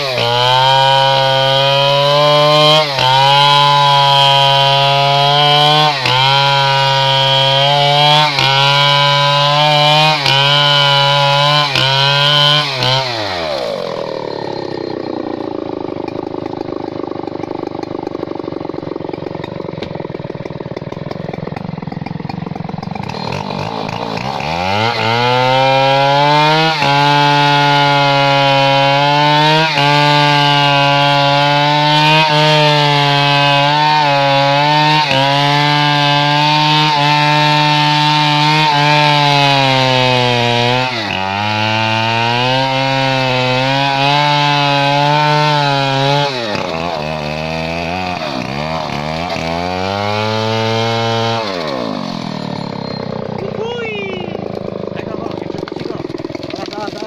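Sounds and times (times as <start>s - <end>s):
chainsaw cutting tree: 0.0s - 57.0s.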